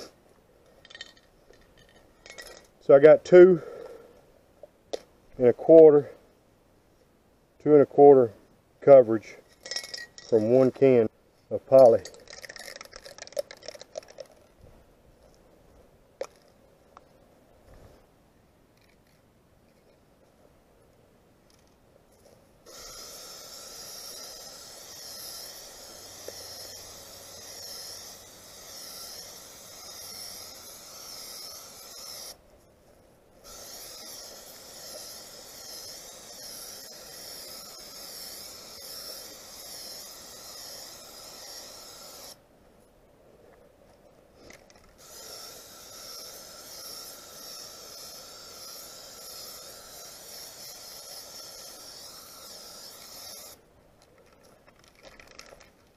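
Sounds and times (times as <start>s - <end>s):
aerosol spray can hissing: 22.6s - 32.4s, 33.4s - 42.4s, 45.0s - 53.6s.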